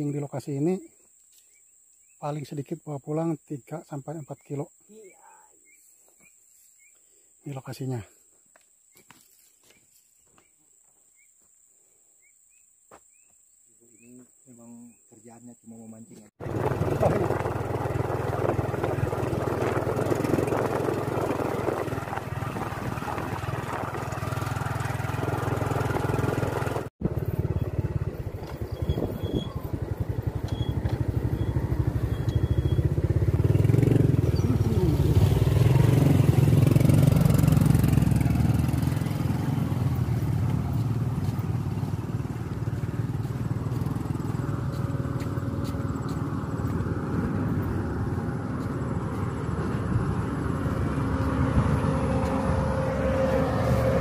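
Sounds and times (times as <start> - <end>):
motorcycle engine running: 16.4 - 54.0.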